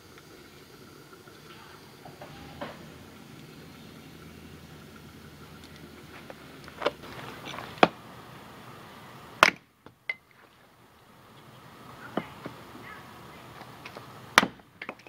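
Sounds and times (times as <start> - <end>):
wooden knocks of firewood: 14.4 - 15.0.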